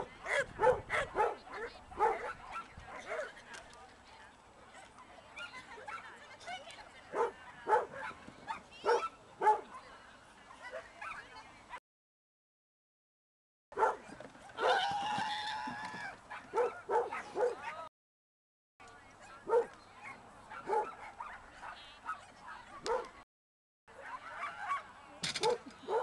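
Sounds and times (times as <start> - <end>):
dog barking: 0.2 - 3.3, 7.1 - 9.7, 13.8 - 14.8, 16.3 - 17.9, 19.5 - 22.3, 22.9 - 23.1, 25.4 - 26.0.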